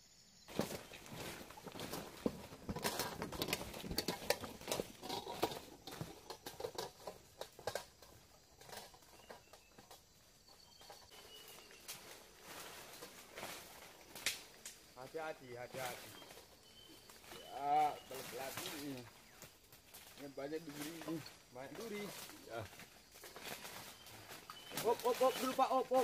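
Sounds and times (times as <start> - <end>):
footsteps crunching through leaves: 0.5 - 6.4, 11.1 - 26.0.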